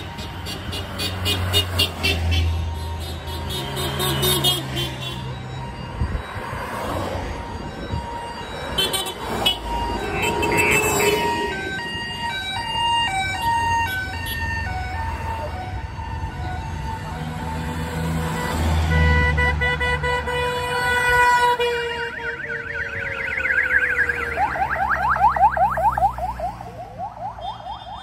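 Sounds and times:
cars and vans passing: 0.0 - 28.0
high melodic horn tones: 8.6 - 11.8, 18.2 - 23.8
car horn toots: 8.8 - 11.5.

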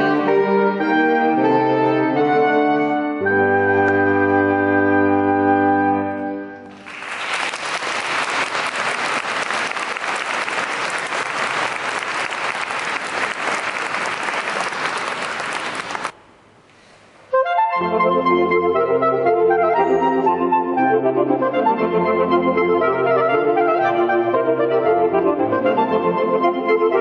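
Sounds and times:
saxophone quartet playing: 0.0 - 6.7, 17.3 - 27.0
audience applause: 6.6 - 16.2.

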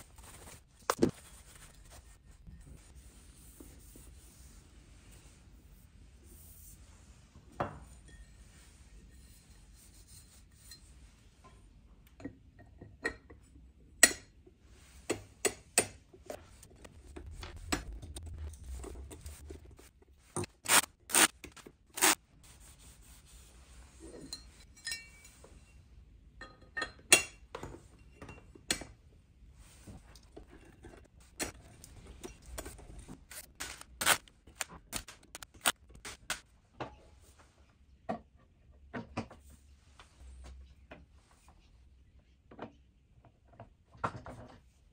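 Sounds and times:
brief low rumble: 16.7 - 20.0.

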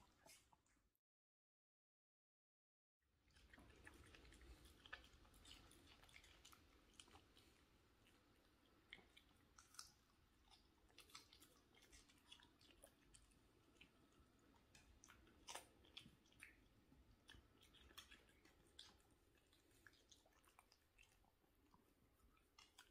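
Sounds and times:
dog chewing cucumber: 3.3 - 21.2.

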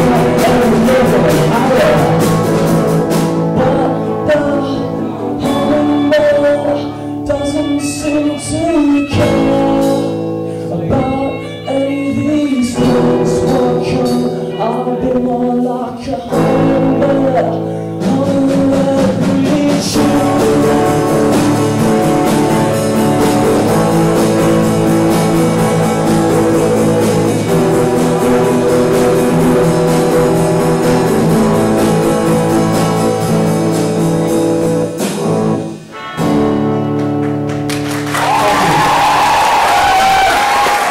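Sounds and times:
person singing: 0.0 - 35.3, 38.2 - 40.9
acoustic guitar: 0.0 - 40.9
drum kit beat: 0.0 - 40.9
applause and cheering: 37.0 - 40.9.

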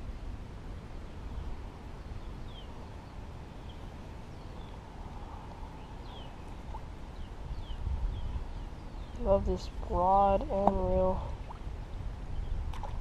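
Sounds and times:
wind rumble on microphone: 0.0 - 13.0
small birds chirping: 2.1 - 11.5.

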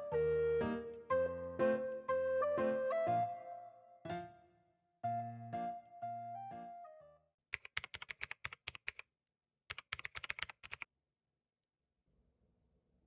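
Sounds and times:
piano-like music phrase: 0.0 - 7.2
computer keyboard typing: 7.5 - 9.1, 9.7 - 10.9.

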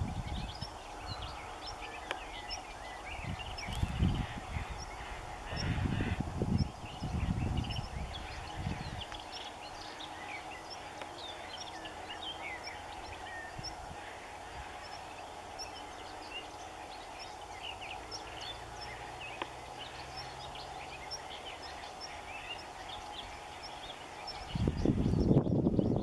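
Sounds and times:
small birds chirping: 0.0 - 26.0
steady low hum: 0.0 - 26.0.

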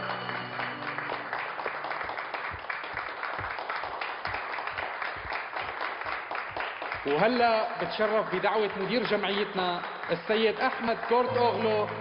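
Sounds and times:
background music: 0.0 - 2.2, 10.6 - 12.0
audience applauding: 0.0 - 12.0.

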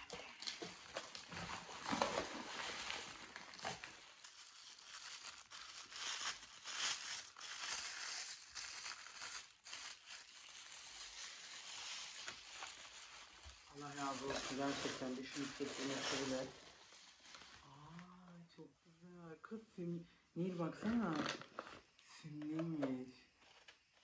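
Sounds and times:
wrapping paper crinkling: 0.0 - 18.0, 20.7 - 21.9.

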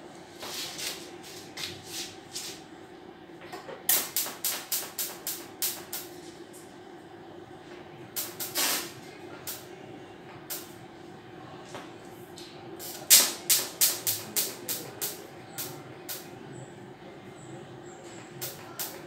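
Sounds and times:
steady low hum: 0.0 - 19.0
welding arc hissing crackles: 3.9 - 6.3, 8.2 - 9.6, 12.8 - 16.3, 18.4 - 19.0.

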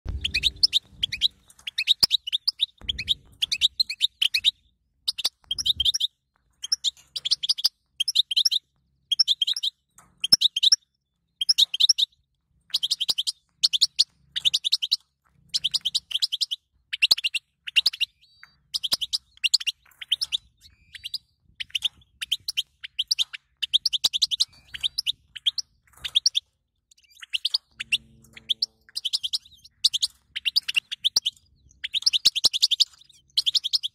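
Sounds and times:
bird twittering chirps: 0.1 - 33.9.

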